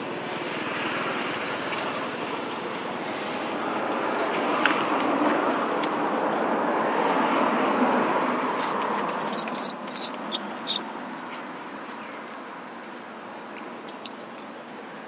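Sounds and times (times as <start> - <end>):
baby monkey squealing: 9.2 - 10.8.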